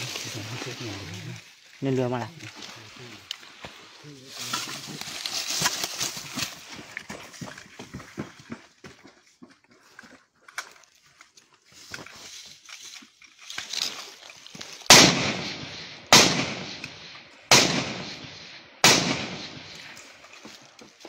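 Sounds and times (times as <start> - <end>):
rifle shots echoing: 14.9 - 20.0.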